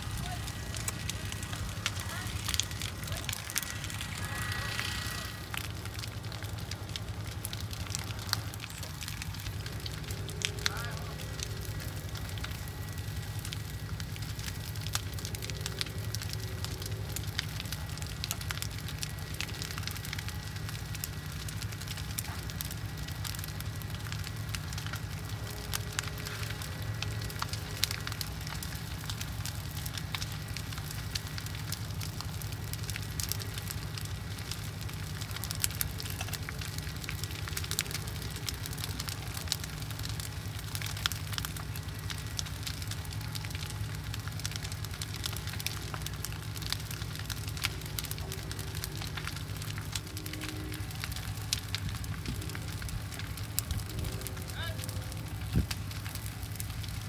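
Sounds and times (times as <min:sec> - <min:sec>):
bonfire burning with crackles: 0:00.0 - 0:57.0.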